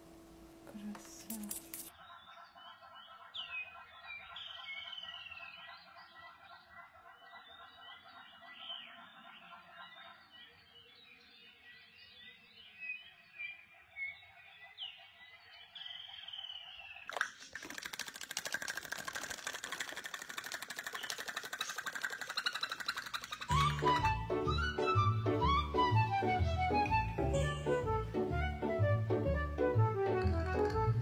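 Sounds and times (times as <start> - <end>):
bird chirps and whistled calls: 2.0 - 6.4, 20.9 - 27.5
fast rattling noise: 17.1 - 24.2.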